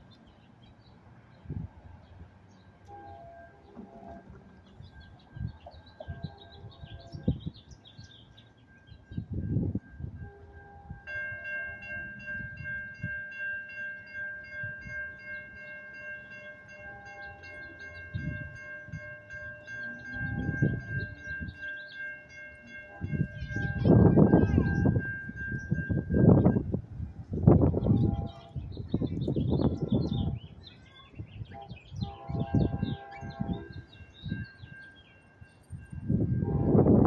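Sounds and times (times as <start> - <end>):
birds chirping: 0.0 - 9.5, 14.9 - 26.6, 27.3 - 35.9
wind gusts on microphone: 1.4 - 1.9, 4.1 - 8.1, 9.1 - 11.2, 22.9 - 34.7, 35.7 - 37.0
crossing warning bell ringing: 2.8 - 37.0.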